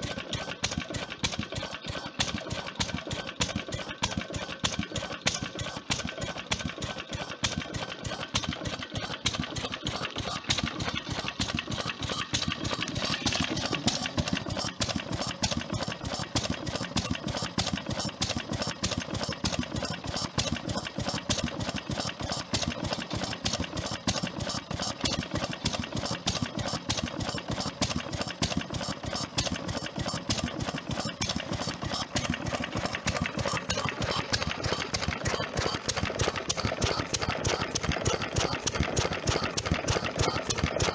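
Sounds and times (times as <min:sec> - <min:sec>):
stationary engine running: 0:00.0 - 0:40.9.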